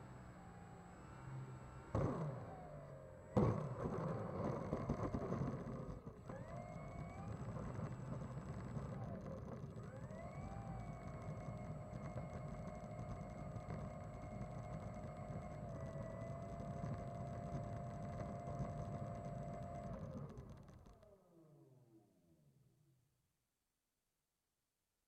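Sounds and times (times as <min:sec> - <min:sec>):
model plane electric motor whining: 0:03.4 - 0:21.1.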